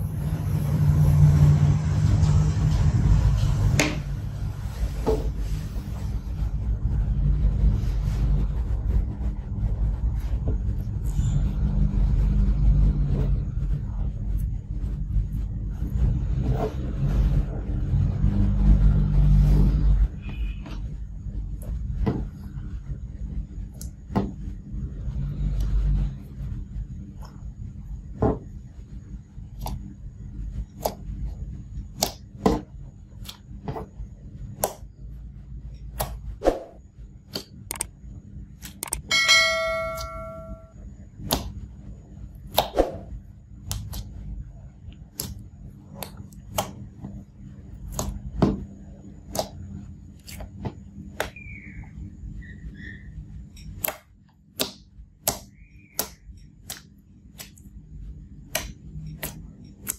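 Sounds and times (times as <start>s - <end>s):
bell-like ding: 39.1s - 40.8s.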